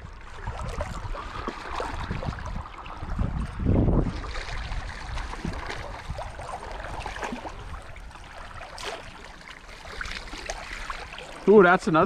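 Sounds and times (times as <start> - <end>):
river water rushing and splashing: 0.0 - 12.0
small splashes and ticks: 0.0 - 12.0.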